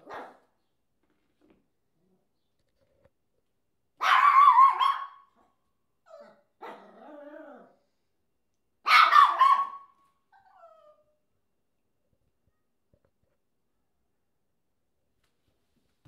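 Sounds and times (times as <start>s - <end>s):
dog barking: 0.0s - 0.5s, 4.0s - 5.4s, 6.6s - 7.0s, 8.8s - 9.9s.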